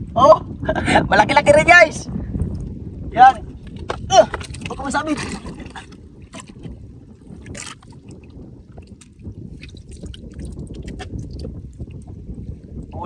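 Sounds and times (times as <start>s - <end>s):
low rumble of wind: 0.0s - 13.0s
water sloshing against boat: 3.9s - 12.2s.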